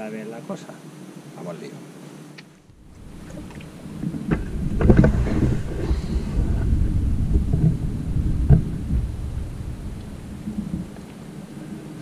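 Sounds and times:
low rough rumbling on microphone: 2.6 - 12.0.

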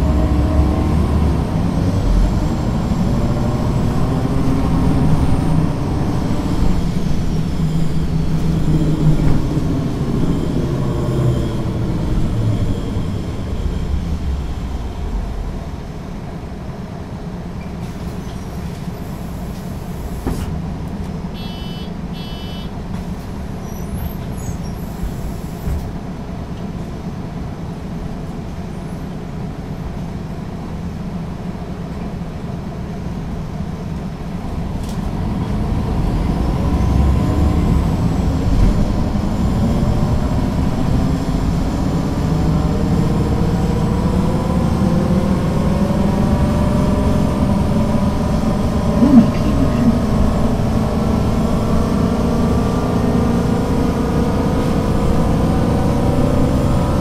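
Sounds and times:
bus diesel engine working hard: 0.0 - 57.0
short high beeps: 21.4 - 22.7.

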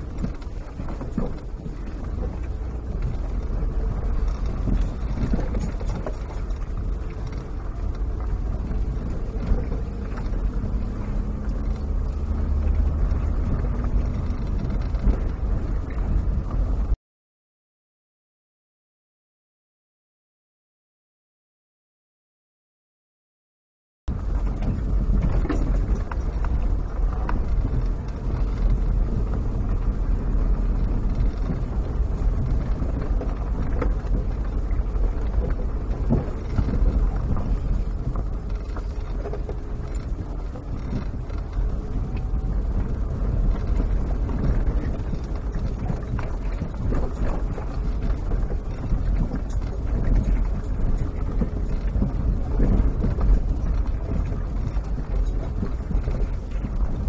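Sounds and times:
knocks and rattles over bumps: 0.0 - 17.0, 24.1 - 57.0
vehicle engine and road rumble: 0.0 - 17.0, 24.1 - 57.0.

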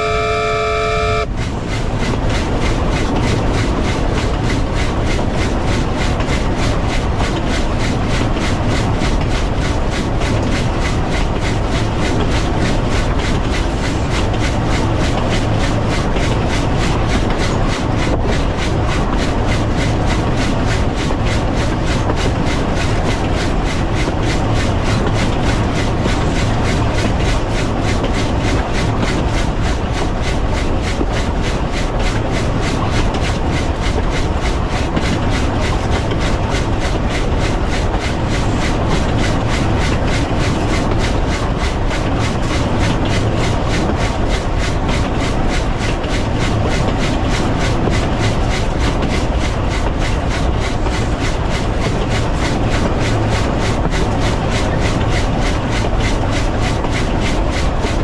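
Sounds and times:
steam locomotive running: 0.0 - 58.0.

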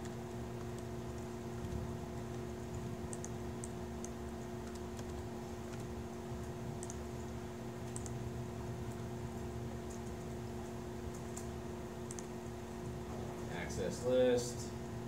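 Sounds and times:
laptop keyboard typing: 0.0 - 8.2, 11.0 - 12.3
low room hum: 0.0 - 15.0.

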